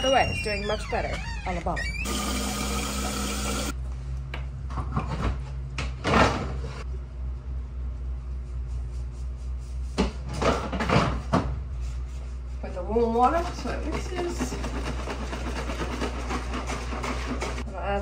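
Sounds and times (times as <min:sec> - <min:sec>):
steady low hum: 0:06.8 - 0:10.4.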